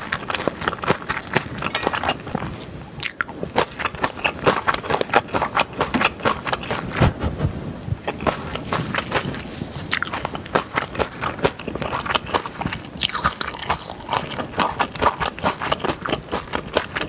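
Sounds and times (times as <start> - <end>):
wet chewing and mouth smacks: 0.0 - 7.1, 7.8 - 17.0
utensil scraping and clicking on dishes: 1.5 - 2.5.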